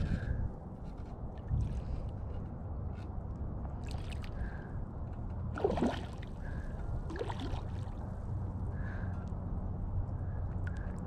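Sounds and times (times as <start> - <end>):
low wind rumble: 0.0 - 11.0
lake water lapping: 5.5 - 8.0.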